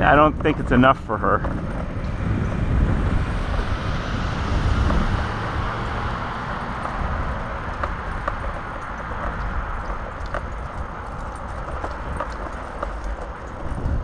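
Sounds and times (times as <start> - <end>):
scooter wheels rolling on asphalt: 0.0 - 14.0
wind buffeting microphone: 0.0 - 14.0.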